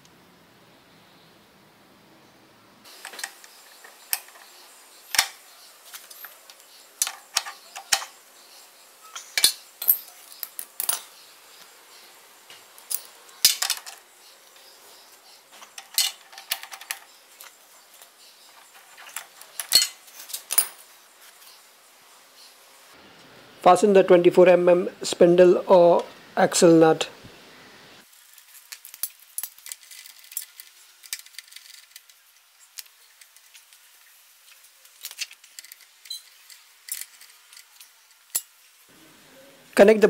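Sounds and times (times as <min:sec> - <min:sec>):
metal tools clinking: 0:03.0 - 0:08.2, 0:09.0 - 0:11.2, 0:12.5 - 0:14.1, 0:15.5 - 0:20.9, 0:35.0 - 0:38.6.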